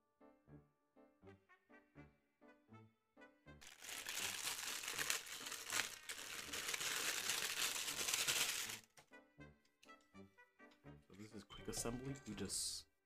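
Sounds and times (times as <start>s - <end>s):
plastic bag crinkling: 3.6s - 8.9s.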